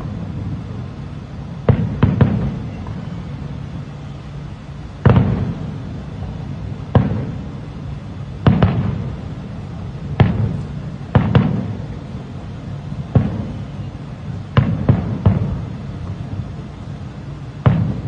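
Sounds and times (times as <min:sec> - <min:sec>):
firework shells booming: 0:01.6 - 0:03.1, 0:04.9 - 0:09.4, 0:10.1 - 0:12.3, 0:12.9 - 0:16.6, 0:17.5 - 0:18.0.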